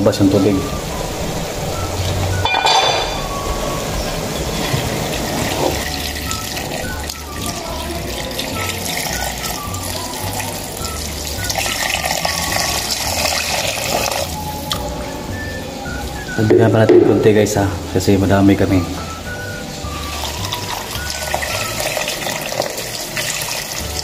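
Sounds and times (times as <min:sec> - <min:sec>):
background music: 0:00.0 - 0:24.0
water pouring into metal pot: 0:00.6 - 0:14.9, 0:19.3 - 0:24.0.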